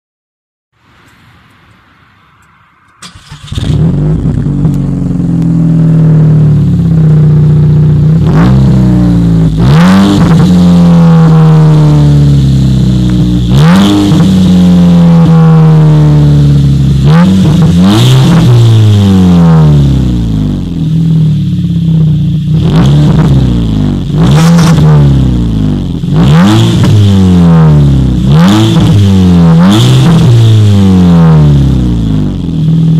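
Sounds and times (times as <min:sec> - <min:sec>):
car engine revving: 0:02.2 - 0:32.9
exhaust cracks: 0:02.4 - 0:30.8.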